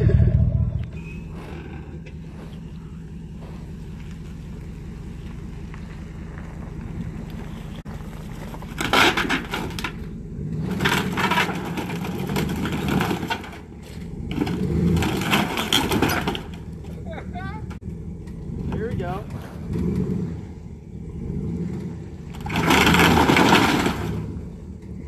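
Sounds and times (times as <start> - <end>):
pickup truck engine running: 0.0 - 25.0
cracking and scraping of boards: 8.3 - 16.7, 22.3 - 24.4
crash of breaking timber: 8.6 - 10.0, 10.6 - 13.7, 14.3 - 16.6, 22.4 - 24.4.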